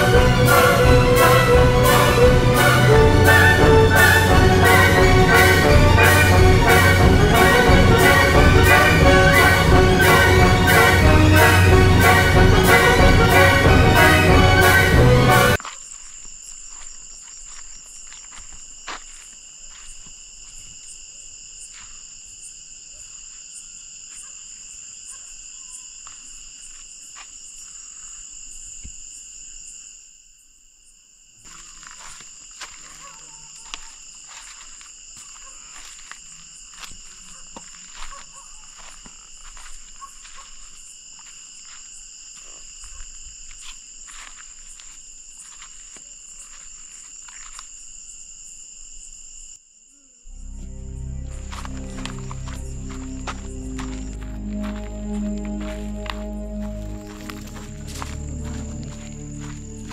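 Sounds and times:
crickets trilling: 15.6s - 59.9s.

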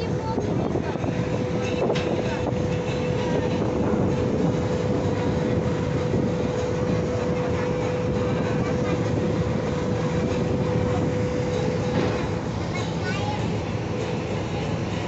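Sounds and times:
motorboat engine droning: 0.0s - 15.0s.

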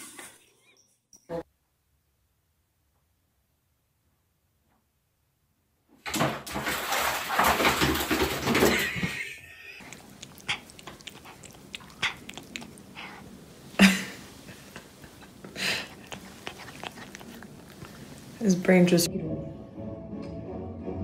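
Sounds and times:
cat licking and chewing plastic: 9.7s - 18.5s.

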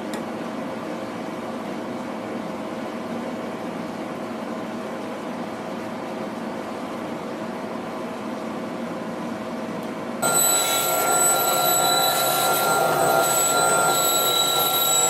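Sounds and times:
steady background noise: 0.0s - 15.0s
band saw cutting wood: 10.2s - 15.0s.

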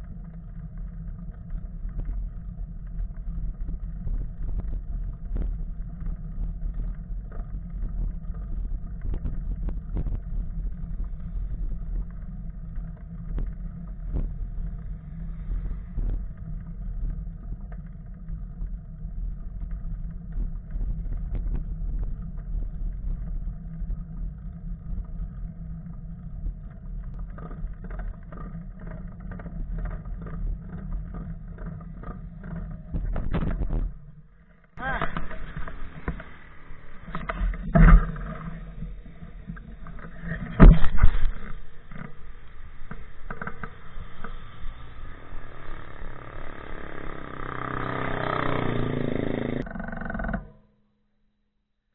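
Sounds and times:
bicycle road rumble: 0.0s - 50.8s
wind noise on microphone: 3.0s - 12.2s, 13.2s - 17.2s, 19.6s - 25.5s, 32.9s - 34.2s, 34.9s - 45.2s
car passing close: 44.3s - 49.6s.

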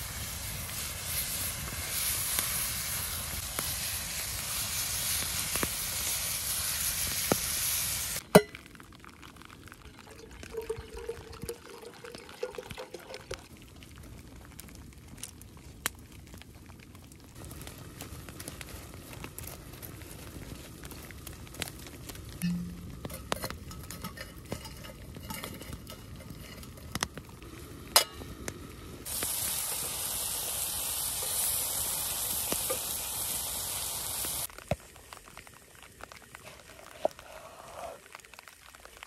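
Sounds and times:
meat sizzling in a frying pan: 0.0s - 9.6s, 17.3s - 39.0s
fire crackling: 0.0s - 39.0s
water pouring into metal flask: 9.4s - 13.5s.

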